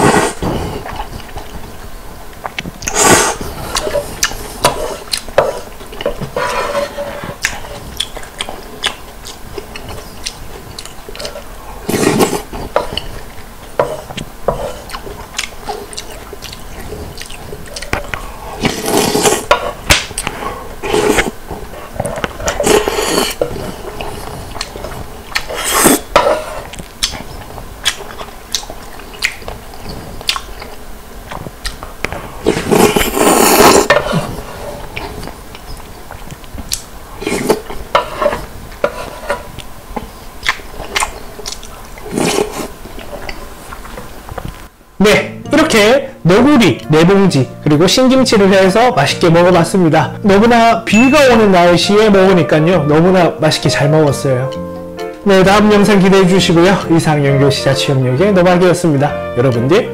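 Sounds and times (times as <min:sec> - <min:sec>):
slurping noodles: 0:00.0 - 0:01.3, 0:02.8 - 0:05.7, 0:09.8 - 0:13.2, 0:13.8 - 0:26.7, 0:32.4 - 0:35.4, 0:37.2 - 0:39.5, 0:40.5 - 0:43.2
wet chewing: 0:00.0 - 0:06.6, 0:07.2 - 0:44.7.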